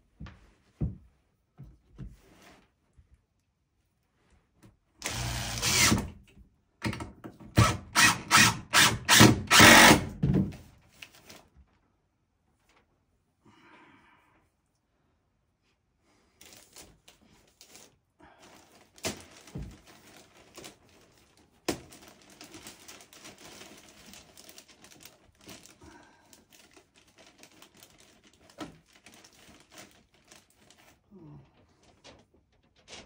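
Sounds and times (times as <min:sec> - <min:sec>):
plastic sheeting crinkling: 0:16.4 - 0:33.0
plastic sheeting snapping: 0:18.6 - 0:33.0.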